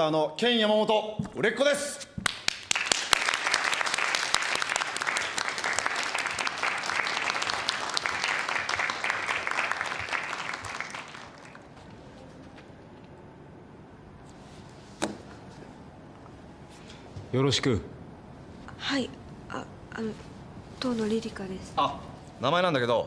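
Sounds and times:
people applauding: 2.2s - 11.8s.

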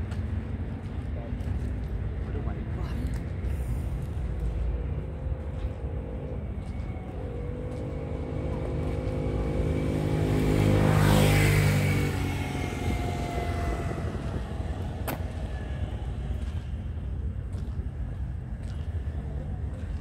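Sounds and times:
vehicle driving past: 3.4s - 17.4s.

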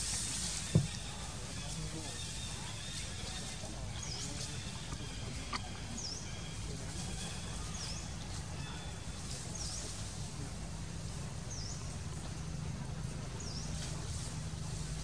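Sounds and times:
small bird calling: 0.2s - 10.0s.

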